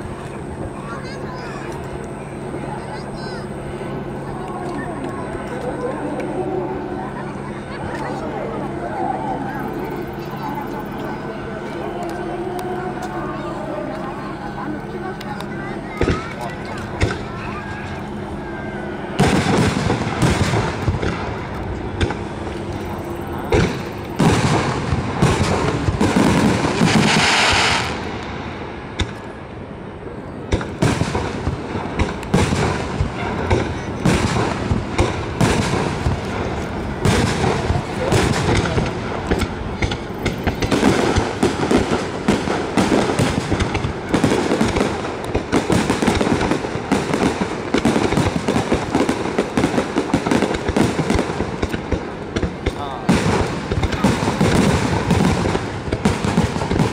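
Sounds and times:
firework hissing: 15.0 - 29.7, 30.5 - 56.9
firework shells bursting: 19.2 - 29.3, 30.5 - 56.9.

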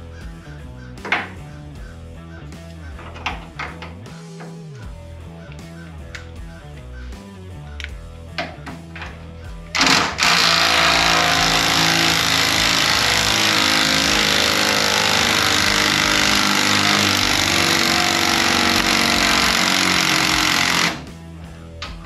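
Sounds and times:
impact wrench hammering: 9.8 - 21.1.

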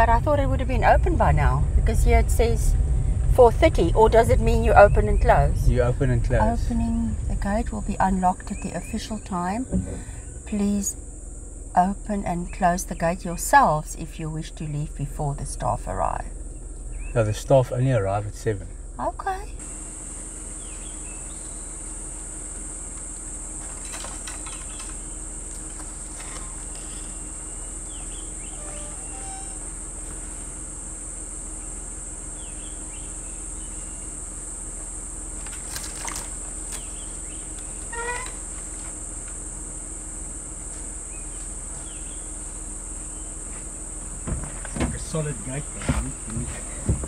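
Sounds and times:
high-pitched insect chorus: 0.0 - 47.0.

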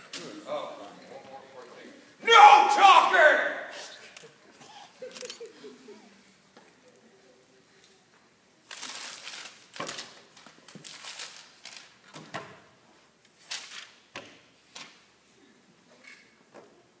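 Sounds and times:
paper crinkling: 8.7 - 12.1.

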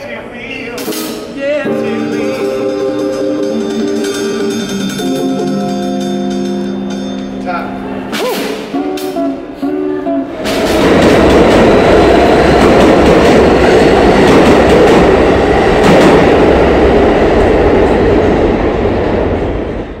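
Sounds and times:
subway train rumble: 0.0 - 20.0
drum and guitar notes: 0.8 - 11.8
rail clatter: 10.3 - 19.8.

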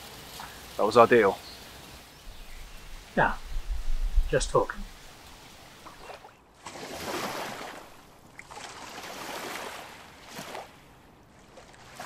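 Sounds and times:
wind gusting: 0.8 - 8.3.

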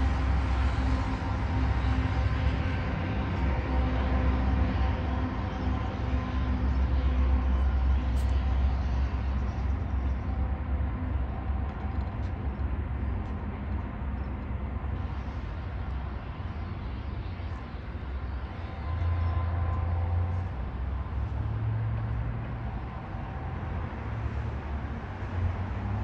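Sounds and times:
locomotive engine rumble: 0.0 - 26.0
rail noise: 0.0 - 26.0.

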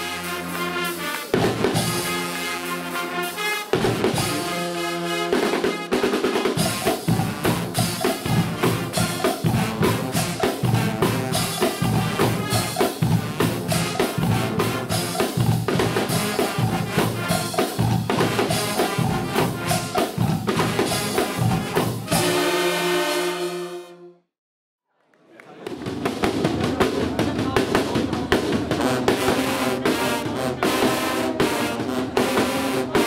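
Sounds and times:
brass section held chord: 0.0 - 6.0, 20.6 - 24.2
drums playing fast beat: 0.0 - 22.5, 25.7 - 33.0.

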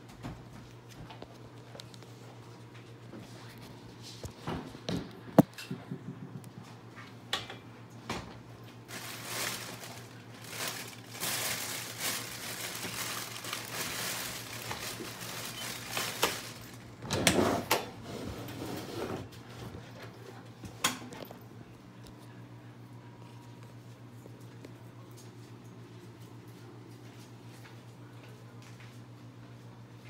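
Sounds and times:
chip bag crinkling: 8.8 - 17.0.

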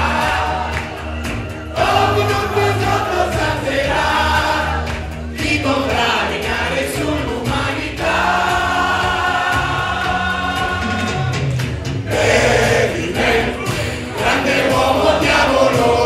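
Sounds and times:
backing track music: 0.0 - 16.0.

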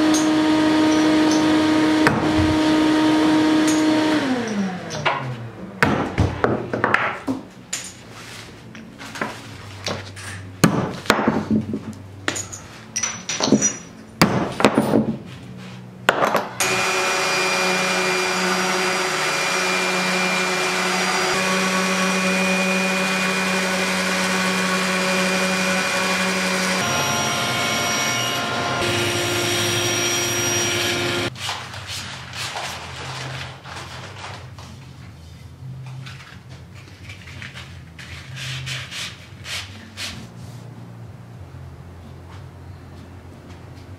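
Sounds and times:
electric sander running on wood: 16.6 - 31.3.

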